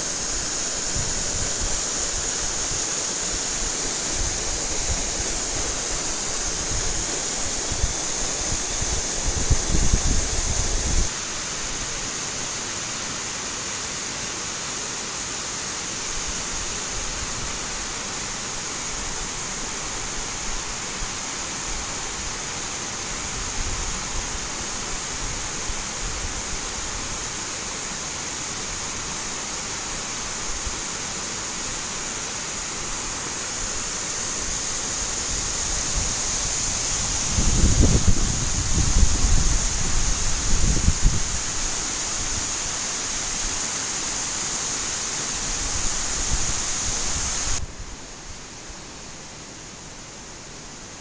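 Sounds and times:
water cascading over weir: 0:00.0 - 0:47.8.

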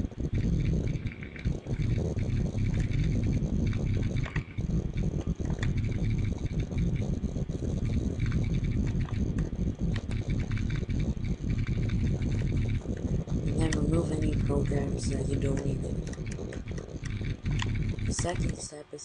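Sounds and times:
low rumbling noise: 0:00.0 - 0:19.0.

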